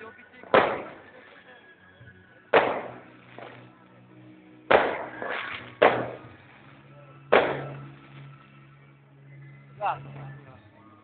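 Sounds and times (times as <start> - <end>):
fireworks crackle: 0.0 - 8.8
fireworks bangs with echo: 0.3 - 1.3, 2.5 - 3.7, 4.6 - 6.6, 7.3 - 8.3.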